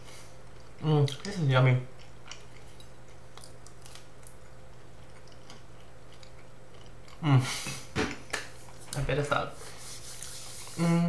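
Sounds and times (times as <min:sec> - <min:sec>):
steady low hum: 0:00.0 - 0:11.0
soft chewing clicks: 0:00.4 - 0:07.3.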